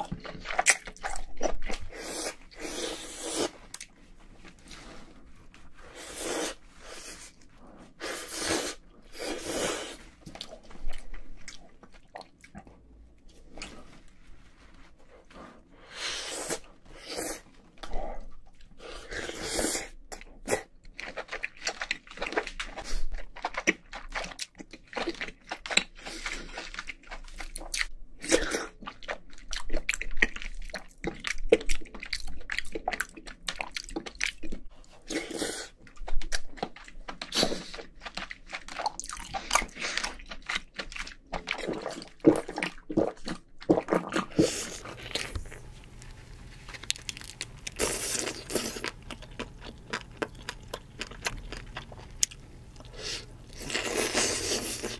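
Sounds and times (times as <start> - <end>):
person chewing crab meat: 0.0 - 14.0, 15.8 - 54.9
wet mouth sounds: 46.8 - 54.9.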